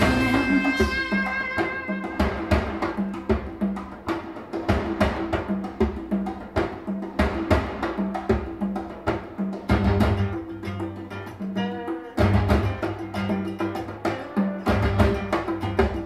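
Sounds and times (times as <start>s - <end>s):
held bass notes: 0.0s - 2.8s
percussion strikes: 0.0s - 16.0s.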